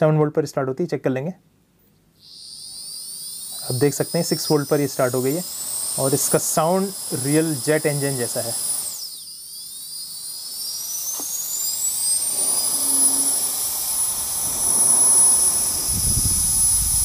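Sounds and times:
small motor high-pitched whine: 1.9s - 17.0s
rush of air: 12.2s - 17.0s.

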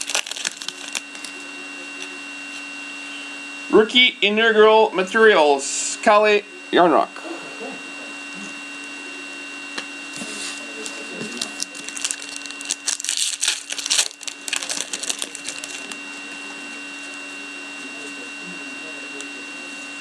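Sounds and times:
foil pack tearing and crinkling: 0.0s - 1.4s, 10.2s - 16.0s.

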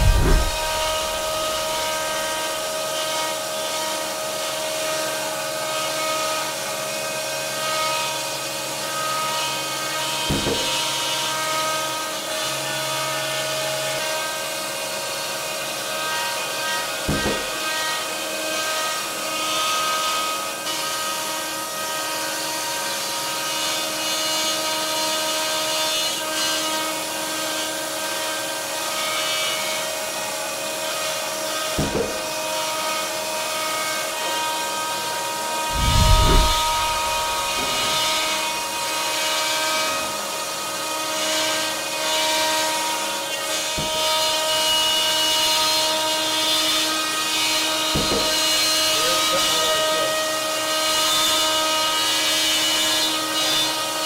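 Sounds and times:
low thumps: 0.0s - 1.9s, 35.7s - 38.8s.

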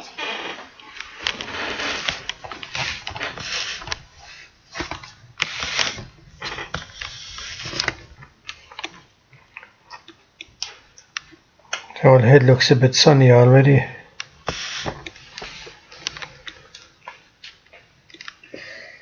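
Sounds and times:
handling rustling and scraping: 0.0s - 9.1s, 14.2s - 16.9s.

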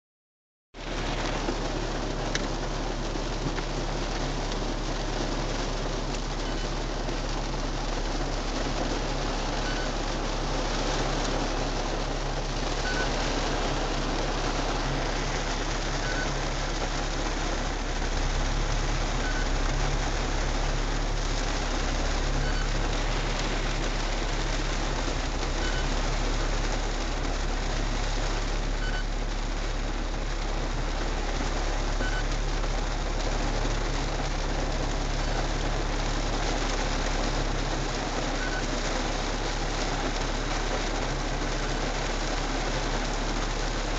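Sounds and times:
rain on car roof: 0.7s - 43.9s
car engine idling: 0.8s - 43.9s
faint short beep: 6.4s - 6.7s, 9.6s - 10.0s, 12.8s - 13.2s, 16.0s - 16.4s, 19.2s - 19.6s, 22.4s - 22.8s, 25.6s - 26.0s, 28.8s - 29.1s, 32.0s - 32.3s, 38.4s - 38.7s.

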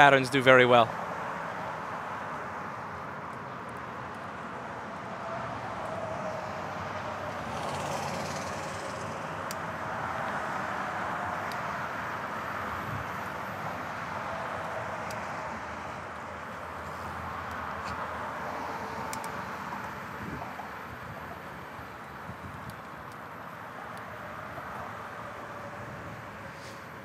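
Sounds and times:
city traffic noise: 0.0s - 27.0s
brief hiss: 26.5s - 26.9s.

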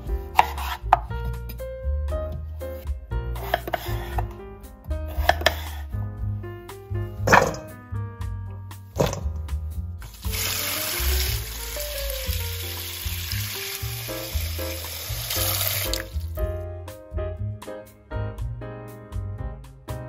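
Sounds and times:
background music: 0.0s - 20.0s
tap water running into bowl: 10.1s - 16.3s.

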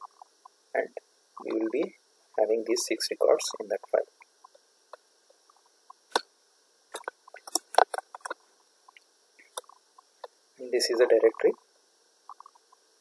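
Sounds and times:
mouse and keyboard clicks: 7.0s - 8.4s.

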